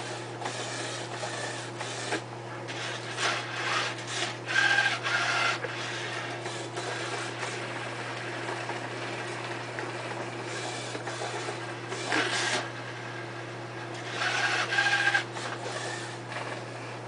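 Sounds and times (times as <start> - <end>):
robot arm motors whirring: 0.0 - 7.6, 10.5 - 12.7, 14.0 - 16.6.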